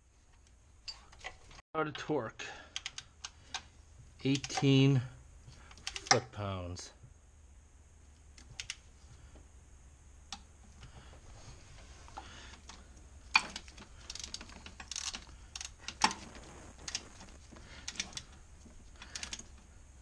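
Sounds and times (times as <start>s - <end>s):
torque wrench clicking: 13.4s - 16.1s, 19.0s - 19.5s.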